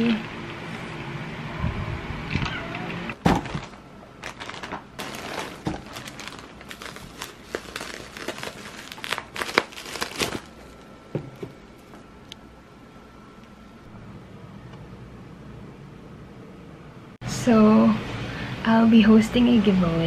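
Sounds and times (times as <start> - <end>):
bubble wrap crinkling: 3.2 - 12.0.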